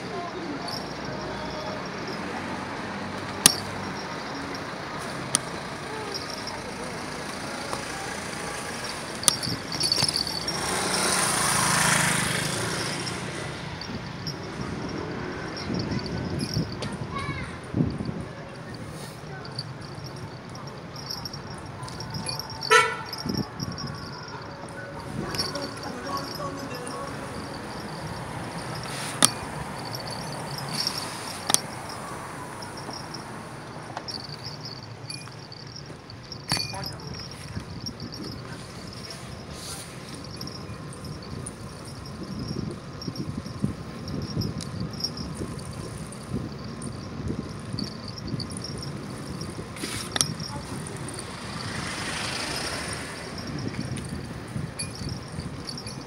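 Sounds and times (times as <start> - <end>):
vehicle passing by: 0.0 - 16.8, 17.7 - 36.0, 46.4 - 55.9
road and wind rumble: 0.0 - 56.0.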